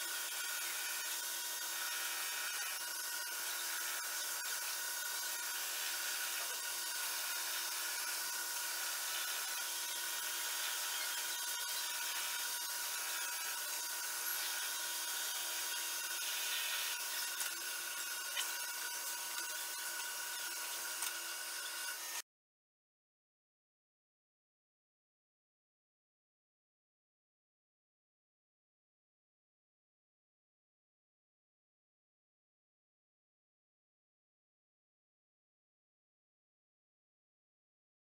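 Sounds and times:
hiss of lathe cutting: 0.0 - 22.2
lathe machine whine: 0.0 - 22.2.

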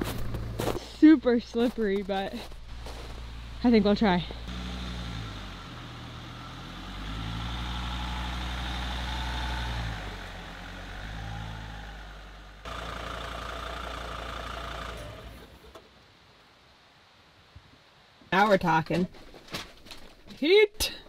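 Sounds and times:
van engine running: 0.0 - 15.8.

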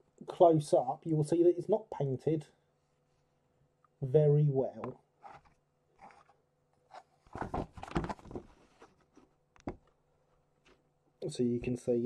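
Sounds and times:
plastic model handling rustles: 5.2 - 9.3
plastic rubbing and scraping: 5.2 - 9.3.

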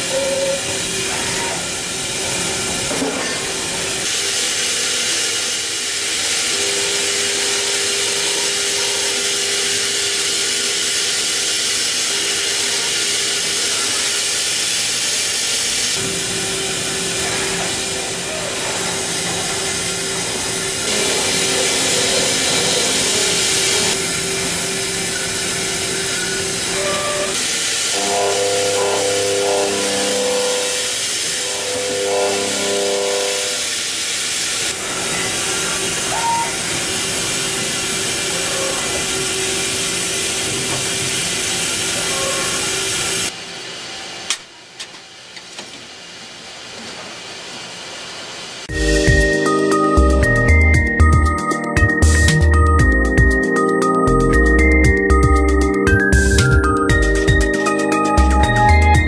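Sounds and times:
spindle whine: 48.7 - 59.0.

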